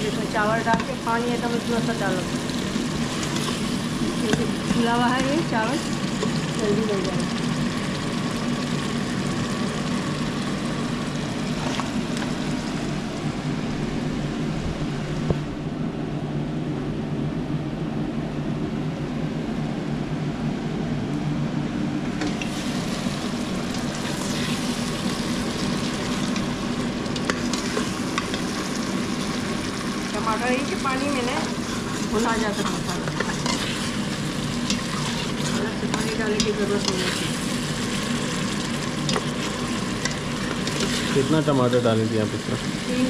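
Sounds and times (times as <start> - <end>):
tomatoes sizzling in pot: 0.0 - 13.5, 22.2 - 43.0
steady low hum: 0.0 - 43.0.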